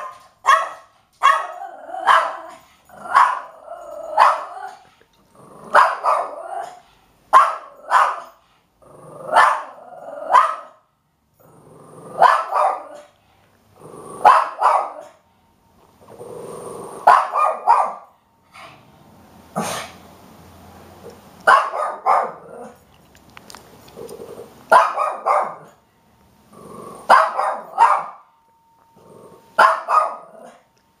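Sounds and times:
puppy barking: 0.0 - 4.8, 5.7 - 8.4, 9.3 - 10.8, 12.2 - 13.2, 14.2 - 15.2, 17.0 - 18.1, 21.4 - 22.8, 24.7 - 25.8, 27.1 - 28.2, 29.6 - 30.6.

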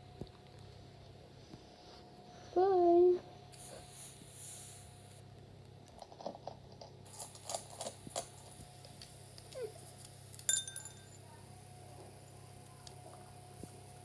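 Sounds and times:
puppy eating crunches: 5.8 - 10.1
metallic clink against steel bowl: 10.4 - 11.2.

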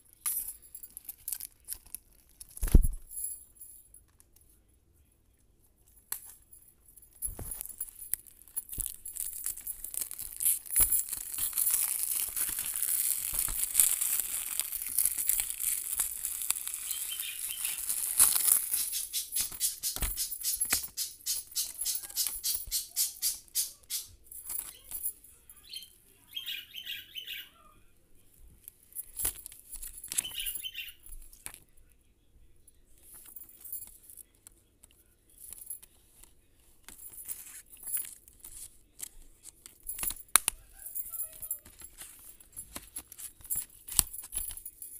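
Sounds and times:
paper rustling: 8.7 - 23.4, 40.9 - 44.6.

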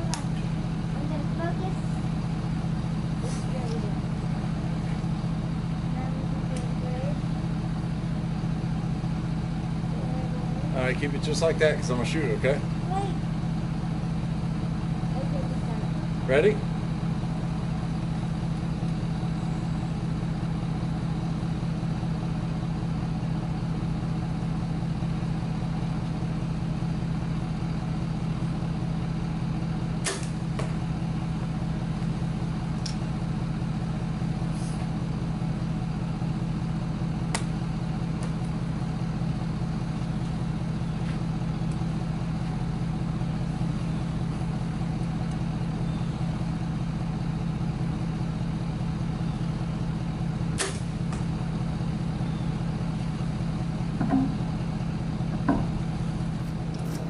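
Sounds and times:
truck engine idling: 0.0 - 57.0
bow shot snap: 30.0 - 30.8, 50.6 - 51.3.

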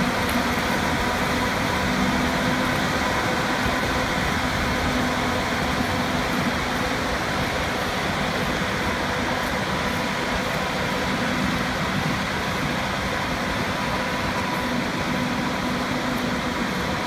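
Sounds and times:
tractor diesel engine droning: 0.0 - 17.0.

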